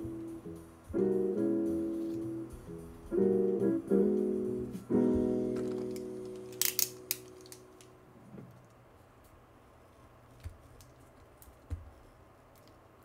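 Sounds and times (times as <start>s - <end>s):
piano chord: 0.0s - 6.6s
paper rustling and tapping: 5.5s - 7.7s, 10.4s - 12.0s.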